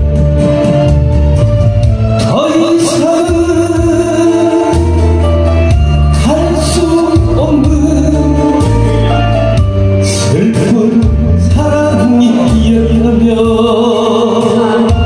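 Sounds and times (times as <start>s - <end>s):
recorded backing track: 0.0s - 15.0s
man singing into microphone: 2.1s - 5.2s, 6.0s - 9.2s, 10.0s - 15.0s.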